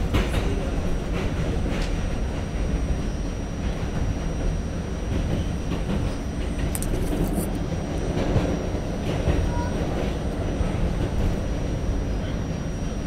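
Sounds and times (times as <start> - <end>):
subway wheels rumbling on rail: 0.0 - 13.0.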